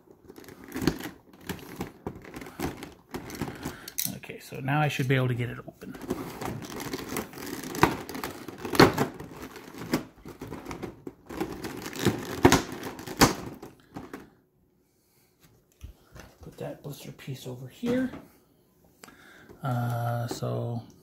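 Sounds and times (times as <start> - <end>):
plastic packaging crinkling: 0.2 - 3.9, 5.9 - 14.2.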